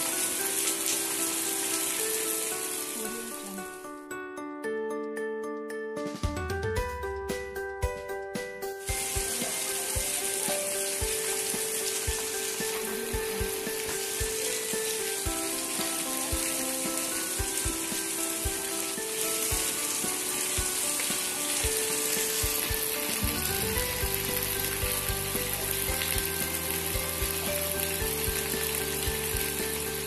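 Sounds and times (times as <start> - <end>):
heavy rain hissing: 0.0 - 3.6, 8.9 - 30.0
background music with low beat: 5.9 - 20.0, 20.6 - 30.0.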